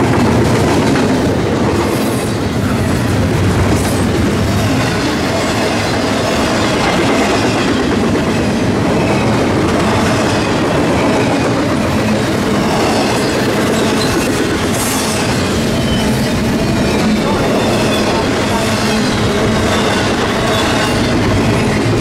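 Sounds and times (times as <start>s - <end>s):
train wheels rumbling on rail: 0.0s - 22.0s.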